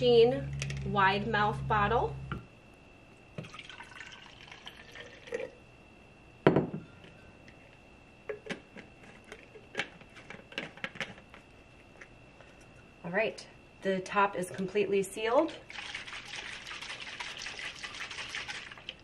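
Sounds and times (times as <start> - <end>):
water poured into a bottle: 3.4 - 5.5, 15.7 - 19.0.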